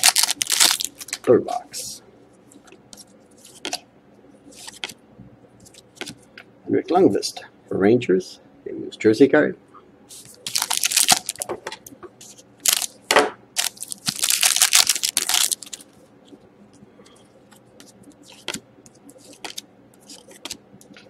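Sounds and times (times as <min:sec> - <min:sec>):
cards rustling and clicking: 0:00.0 - 0:01.3, 0:04.6 - 0:05.0, 0:05.7 - 0:06.2, 0:10.2 - 0:11.6, 0:12.3 - 0:12.9, 0:13.6 - 0:15.9, 0:17.5 - 0:21.0
foil wrapper crinkling: 0:00.0 - 0:01.3, 0:10.4 - 0:11.5, 0:12.6 - 0:13.0, 0:13.6 - 0:15.9.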